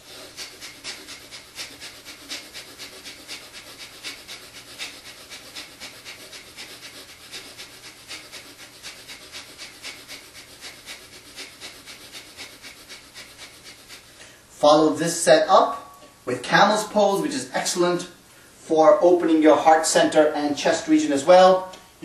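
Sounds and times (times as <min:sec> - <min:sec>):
rapid forceful nose exhalations: 0:00.0 - 0:14.5.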